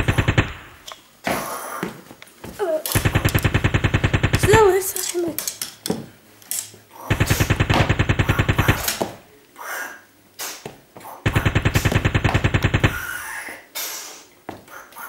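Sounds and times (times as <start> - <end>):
imitation machine-gun fire: 0.0 - 0.9, 2.9 - 4.9, 7.1 - 9.2, 11.2 - 13.2.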